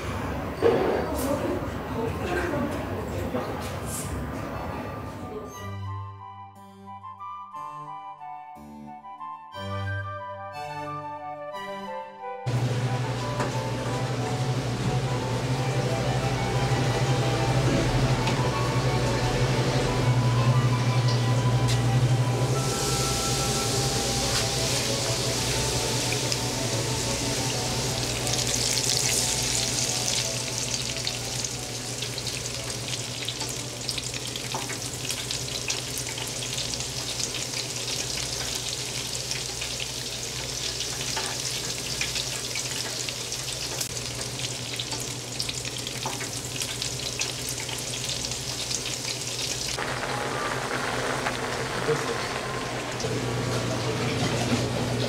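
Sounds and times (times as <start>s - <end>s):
shrimp deep-frying in oil: 22.4s - 53.5s.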